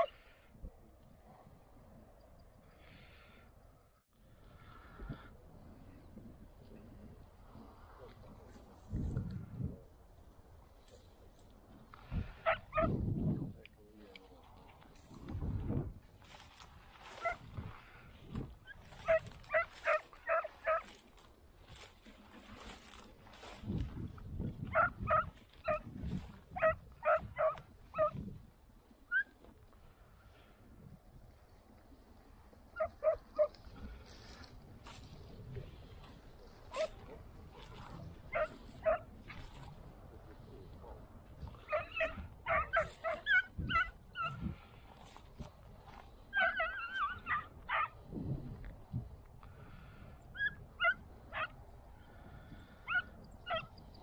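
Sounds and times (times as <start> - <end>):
hounds yelping: 0.0 - 0.2, 12.4 - 13.0, 17.1 - 17.4, 18.6 - 21.0, 24.7 - 25.9, 26.5 - 28.2, 29.1 - 29.4, 32.7 - 33.6, 36.6 - 39.6, 40.8 - 44.4, 46.3 - 48.0, 50.3 - 51.6, 52.8 - 53.8
dog barking: 12.4 - 12.9, 19.0 - 20.9, 24.7 - 25.8, 26.6 - 28.1, 32.8 - 33.5, 36.7 - 37.2, 38.3 - 39.1, 41.7 - 44.4, 46.4 - 48.0, 50.4 - 51.6, 52.9 - 53.7.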